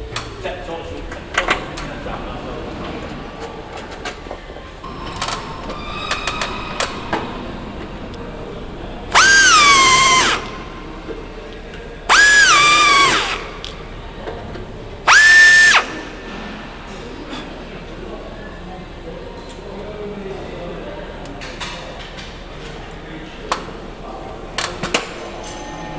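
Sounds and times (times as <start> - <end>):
pneumatic drill whining: 4.8 - 11.3, 12.1 - 16.6.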